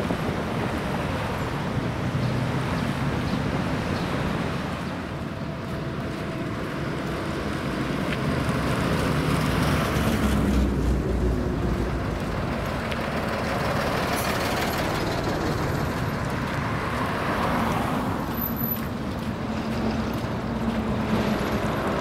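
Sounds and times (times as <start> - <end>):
wind rumbling on microphone: 0.0 - 17.0
traffic on wet road: 0.0 - 22.0
truck engine approaching: 0.0 - 22.0.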